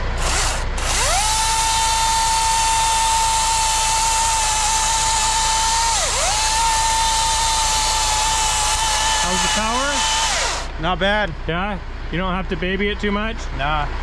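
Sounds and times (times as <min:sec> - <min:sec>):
electric chainsaw whining: 0:00.0 - 0:10.7.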